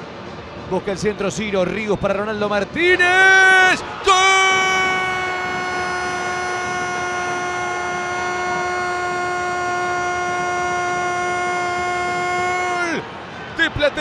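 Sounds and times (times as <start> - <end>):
commentator shouting goal cry: 2.8 - 13.0.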